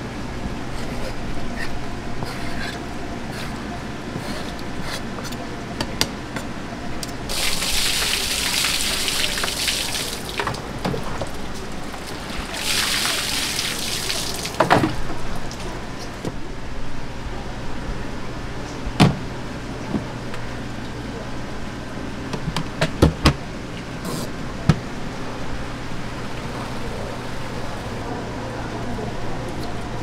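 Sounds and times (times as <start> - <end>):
water spraying over fish: 7.3 - 10.7, 11.3 - 14.7.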